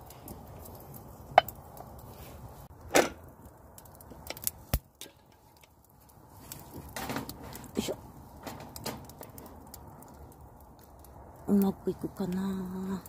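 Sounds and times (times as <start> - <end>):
crack: 2.9 - 5.9.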